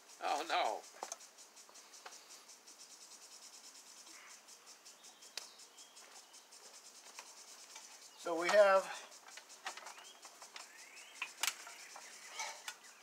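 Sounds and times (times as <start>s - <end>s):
high-pitched insect chirping: 0.0s - 13.0s
sharp click: 10.6s - 11.7s.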